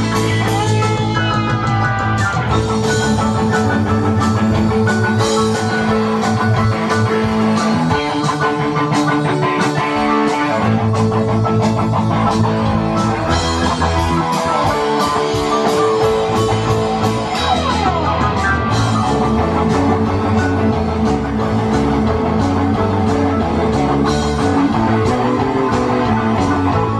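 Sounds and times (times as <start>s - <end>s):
bass guitar: 0.0s - 26.9s
distorted electric guitar: 0.0s - 26.9s.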